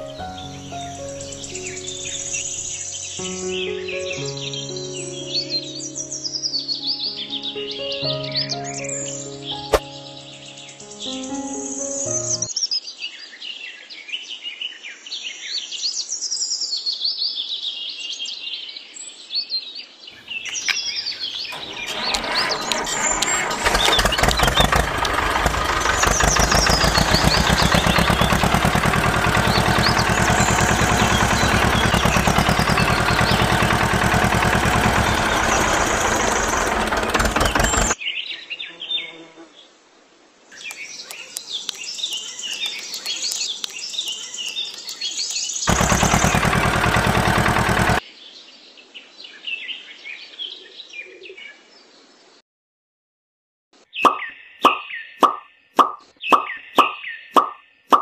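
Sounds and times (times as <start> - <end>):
birds chirping: 0.0 - 12.6, 20.2 - 38.0, 40.6 - 48.0, 53.9 - 58.0
small power tool rattling: 20.4 - 38.0, 45.7 - 48.0.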